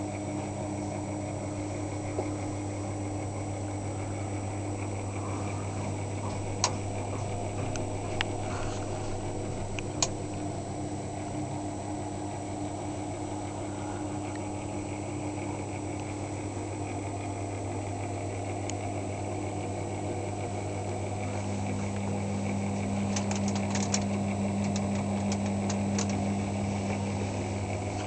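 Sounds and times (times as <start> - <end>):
low machine hum: 0.0 - 28.0
sharp clicks: 23.0 - 26.3.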